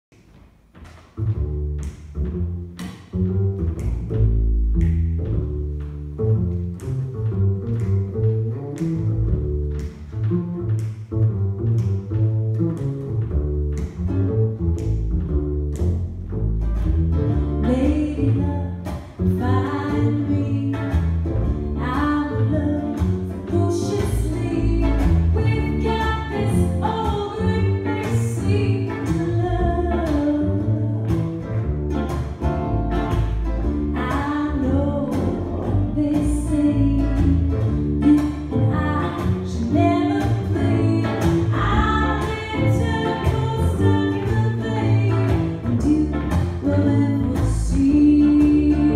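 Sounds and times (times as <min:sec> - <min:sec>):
ukulele: 0:00.2 - 0:48.9
upright double bass: 0:00.7 - 0:48.9
woman singing: 0:17.6 - 0:31.1, 0:33.9 - 0:48.9.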